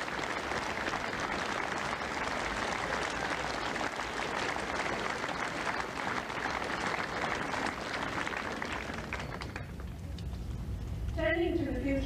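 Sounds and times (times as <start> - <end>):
crowd applauding: 0.0 - 10.0.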